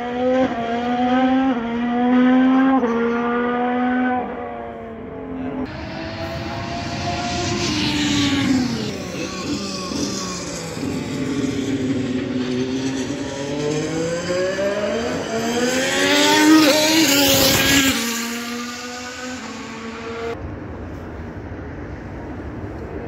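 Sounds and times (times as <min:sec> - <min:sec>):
racing car engine accelerating past: 0:00.0 - 0:20.4
distant engine note: 0:05.6 - 0:20.4.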